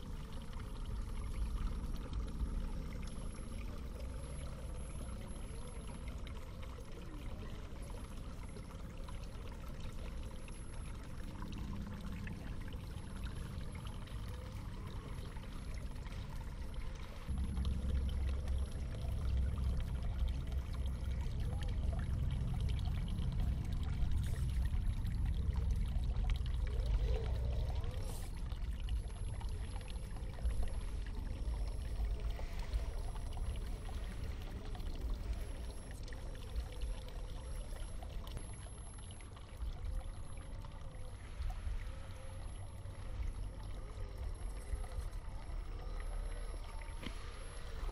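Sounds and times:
water running and pouring: 0.0 - 47.9
low rumble: 13.2 - 39.0.

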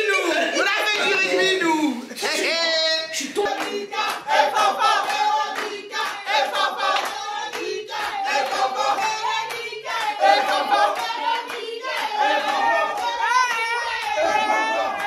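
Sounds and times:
group singing and shouting: 0.0 - 15.0
hand clapping: 3.4 - 15.0.

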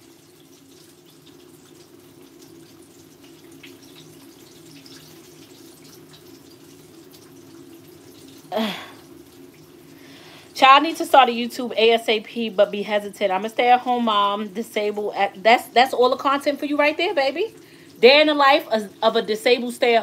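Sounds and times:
chicken sizzling in hot oil: 0.0 - 10.6.

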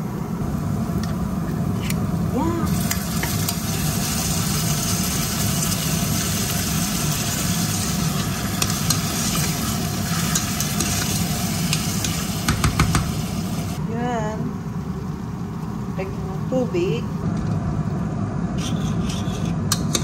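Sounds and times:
steady low hum: 0.0 - 20.0
food sizzling in a pot: 2.2 - 13.8.

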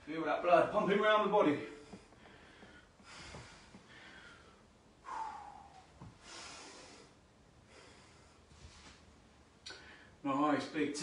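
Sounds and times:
man breathing hard: 1.8 - 8.5
short voiced exhale: 5.0 - 6.8.

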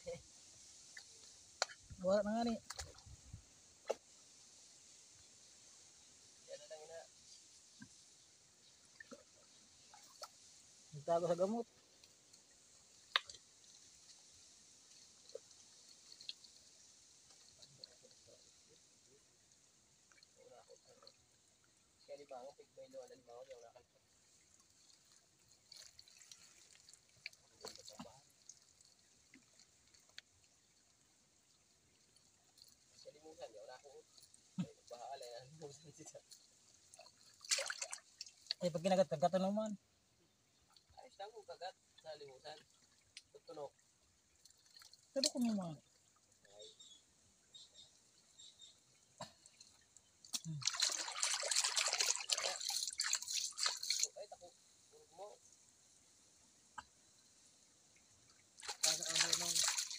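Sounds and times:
hand squelching in wet mud: 50.2 - 54.1.

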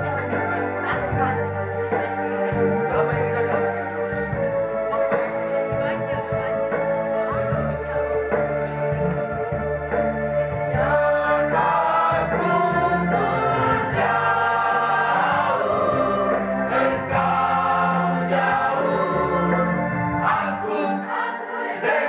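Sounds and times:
electronic organ chords: 0.0 - 21.5
choir singing in parts: 10.6 - 22.0.

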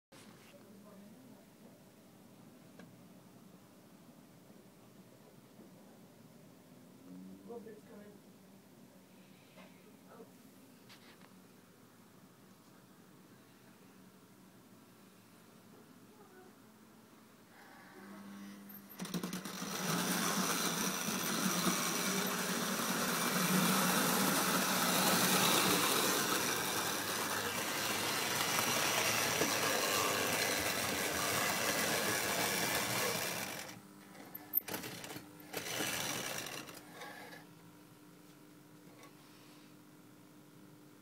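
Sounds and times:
model train electric motor whirring: 18.8 - 33.8, 34.5 - 37.4
wheels rattling on rails: 19.1 - 33.7.

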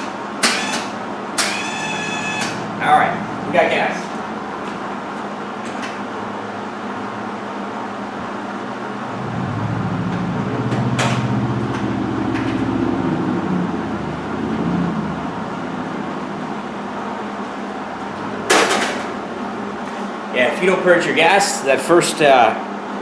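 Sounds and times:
wire-feed motor humming: 0.0 - 3.8, 8.8 - 18.4.

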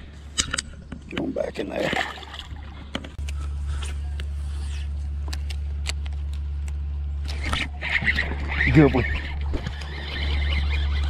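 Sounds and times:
electric motor humming: 5.5 - 11.0.

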